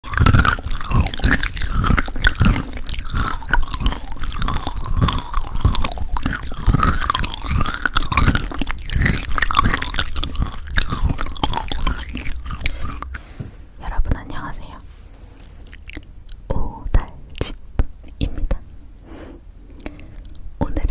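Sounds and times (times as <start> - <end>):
crunchy chewing: 0.0 - 13.5, 15.2 - 16.5.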